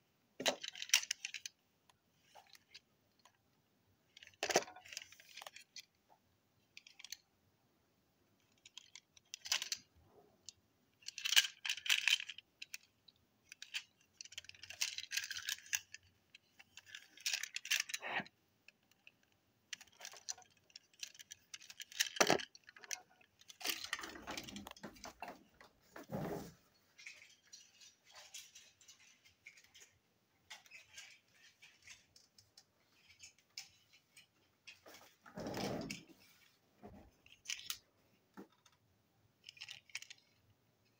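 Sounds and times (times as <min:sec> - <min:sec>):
plastic toy trains rattling: 0:00.4 - 0:01.6, 0:02.2 - 0:03.4, 0:04.1 - 0:06.0, 0:06.6 - 0:07.2, 0:08.4 - 0:25.6, 0:26.9 - 0:36.4, 0:37.2 - 0:37.8, 0:39.4 - 0:40.9.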